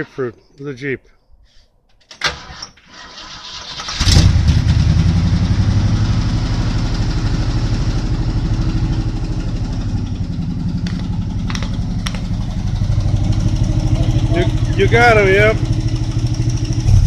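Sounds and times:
car engine idling: 4.3s - 17.0s.

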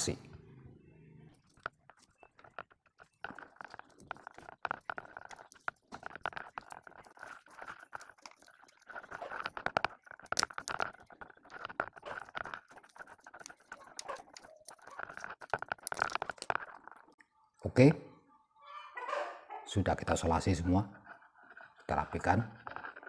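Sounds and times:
electrical tape crackling: 1.3s - 17.3s, 21.0s - 23.0s.

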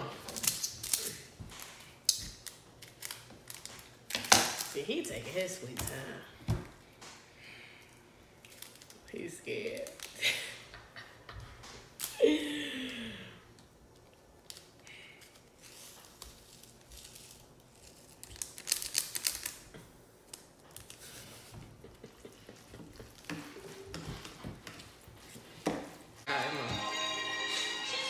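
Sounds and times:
plastic sachet crinkling: 8.4s - 10.2s, 13.9s - 21.4s.

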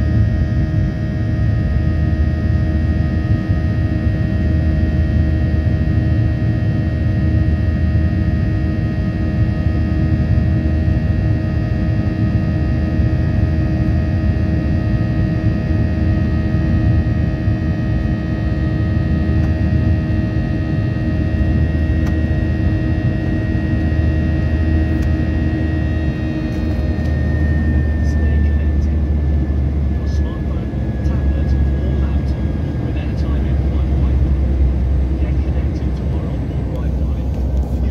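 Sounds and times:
constant whine of steady tones: 0.0s - 37.9s
jet engines rumbling: 11.8s - 37.9s.

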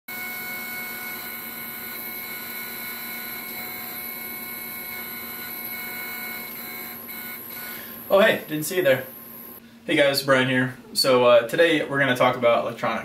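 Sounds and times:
stepper motors whining: 0.1s - 9.6s.

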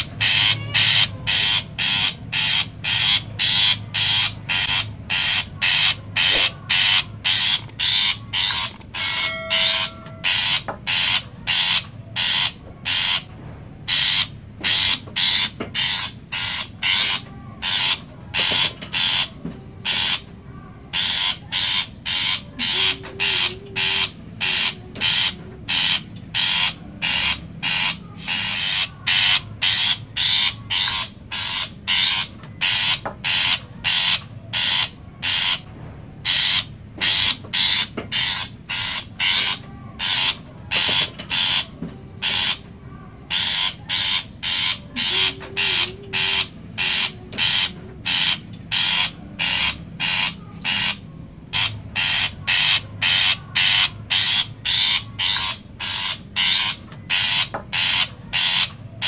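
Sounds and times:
shrike harsh scratchy calls: 0.0s - 13.3s, 36.2s - 42.6s, 43.3s - 58.7s.

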